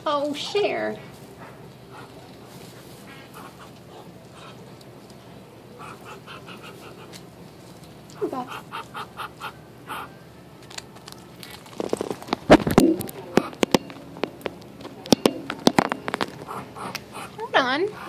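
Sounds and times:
ducks quacking: 3.3 - 4.6, 5.8 - 7.2, 8.2 - 10.1, 16.4 - 18.0.

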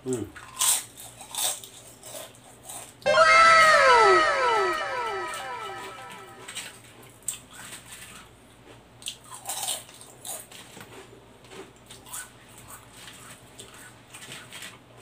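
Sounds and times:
chewing crisp chips: 0.4 - 2.3, 9.0 - 14.8.

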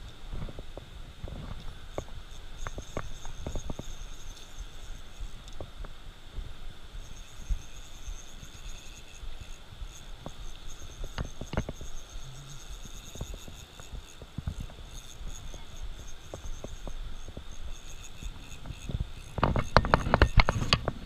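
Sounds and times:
insect chorus with pulsing trill: 0.0 - 21.0
fishing reel clicks and knocks: 7.3 - 17.0, 17.7 - 20.9.

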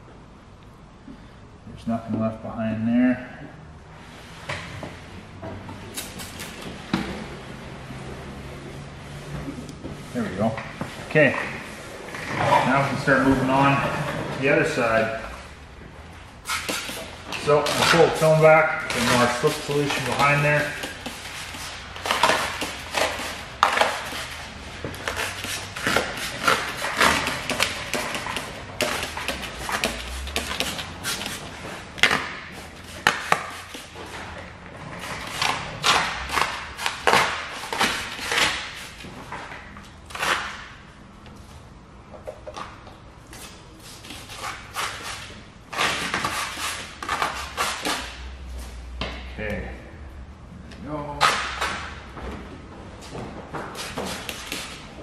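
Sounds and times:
spray bottle squirting: 5.9 - 6.6, 16.4 - 17.1.

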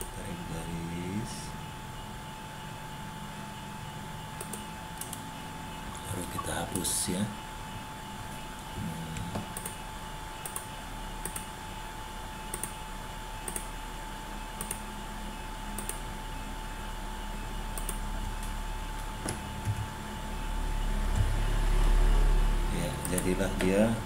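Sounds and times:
computer mouse clicking: 4.4 - 5.3, 9.1 - 9.8, 10.4 - 11.5, 12.5 - 12.8, 13.4 - 13.7, 14.6 - 14.9, 15.7 - 16.0, 17.7 - 19.9, 23.0 - 23.8.

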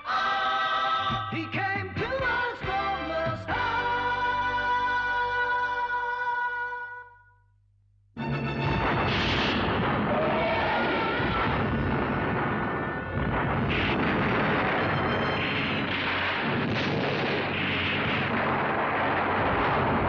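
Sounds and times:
explosions: 8.6 - 20.0
rumble of blasts and fire: 8.6 - 20.0.

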